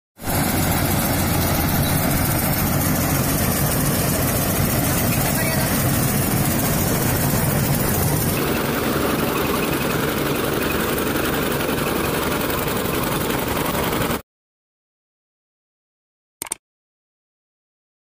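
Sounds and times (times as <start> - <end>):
combine harvester running: 0.2 - 14.2.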